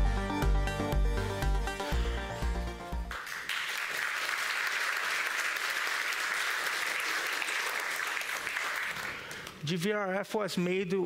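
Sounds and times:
music: 0:00.0 - 0:03.2
audience applauding: 0:03.0 - 0:09.6.

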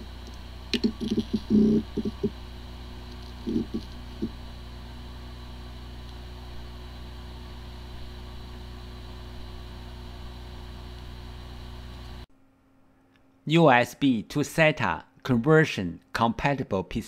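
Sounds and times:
hard disk spinning hum: 0:00.0 - 0:12.6.

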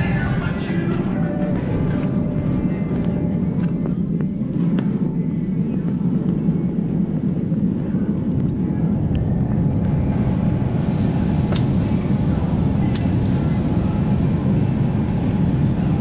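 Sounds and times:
shopping cart wheels rumbling: 0:00.0 - 0:04.1.

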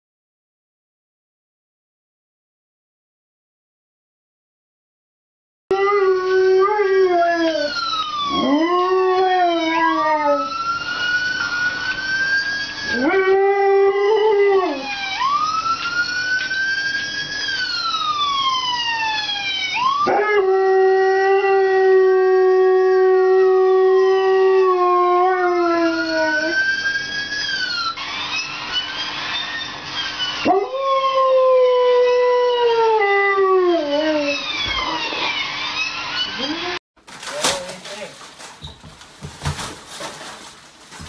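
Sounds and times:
dogs howling: 0:05.7 - 0:15.5, 0:19.0 - 0:36.8.

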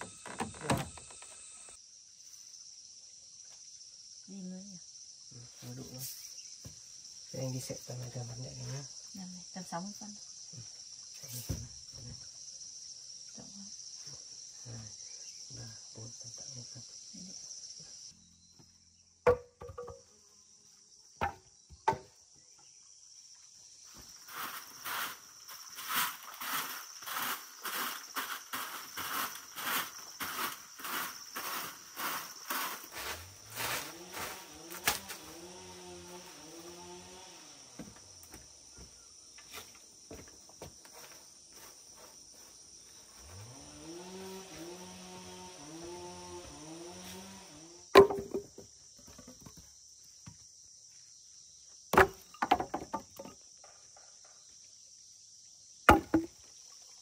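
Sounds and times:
insect chirring: 0:00.0 - 0:57.0
palm fronds sweeping dirt floor: 0:23.8 - 0:48.4
sharp knocks: 0:55.9 - 0:56.4.

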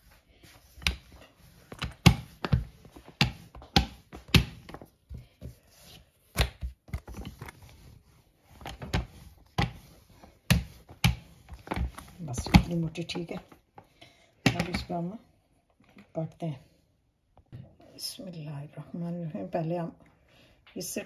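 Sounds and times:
rolling pin knocks and thuds: 0:00.7 - 0:05.6, 0:08.5 - 0:13.4.

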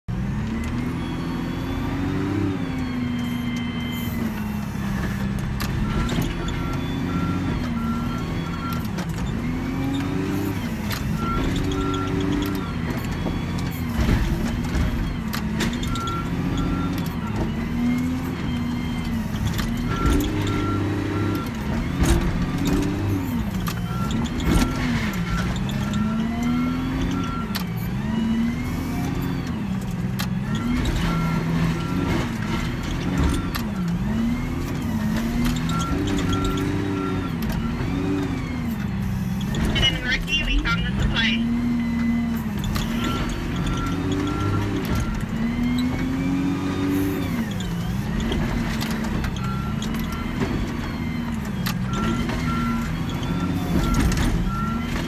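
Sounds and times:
diesel engine revving: 0:00.0 - 0:55.0
back-up alarm beeping: 0:00.5 - 0:13.6, 0:15.8 - 0:29.7, 0:33.2 - 0:38.1, 0:39.4 - 0:41.8, 0:42.6 - 0:46.0.

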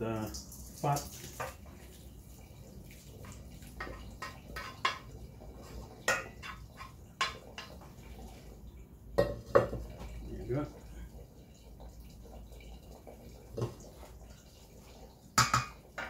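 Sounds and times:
fat draining through colander: 0:00.0 - 0:16.0
wooden spoon knocking frying pan: 0:03.8 - 0:05.1, 0:06.0 - 0:07.9, 0:09.2 - 0:10.1, 0:15.4 - 0:16.0.

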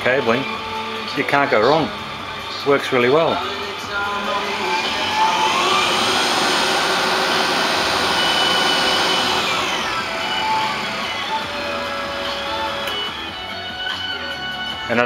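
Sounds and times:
electric motor whine: 0:03.2 - 0:14.4.

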